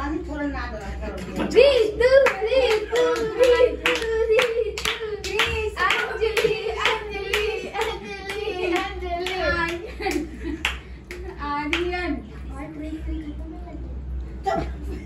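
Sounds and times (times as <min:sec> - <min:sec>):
hand clapping: 0:02.2 - 0:12.0.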